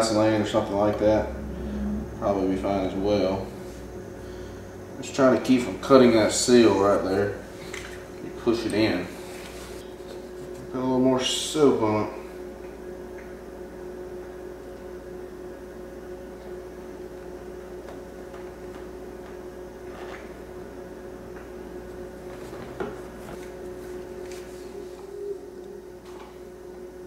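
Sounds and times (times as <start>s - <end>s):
steady hum: 0.0s - 27.0s.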